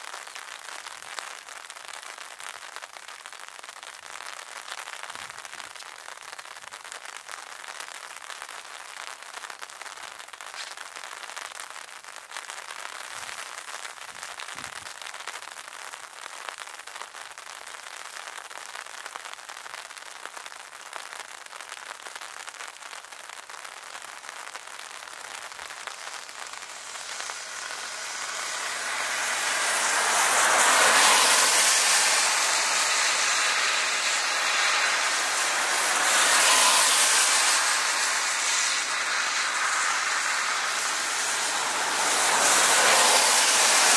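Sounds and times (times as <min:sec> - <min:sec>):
jet engines roaring: 0:25.7 - 0:43.9.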